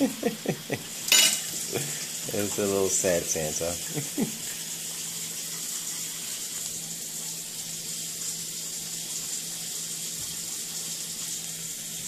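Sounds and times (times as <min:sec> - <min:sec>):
batter sizzling on griddle: 0:00.0 - 0:12.0.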